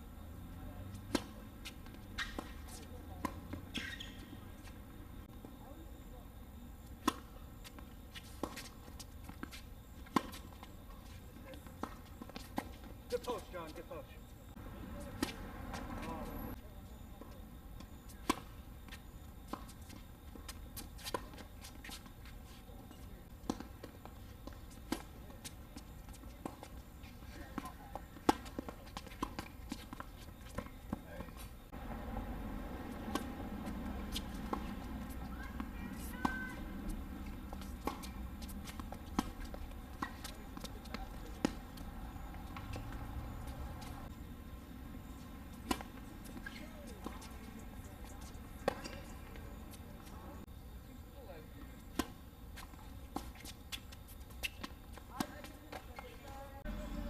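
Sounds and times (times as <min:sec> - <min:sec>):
shoes on hard court: 0:00.4 - 0:05.8, 0:06.8 - 0:50.5, 0:51.6 - 0:57.0
rackets striking tennis ball: 0:00.9 - 0:05.1, 0:22.9 - 0:44.2, 0:45.0 - 0:50.5, 0:51.8 - 0:56.8
ball bouncing on hard court: 0:27.5 - 0:44.1.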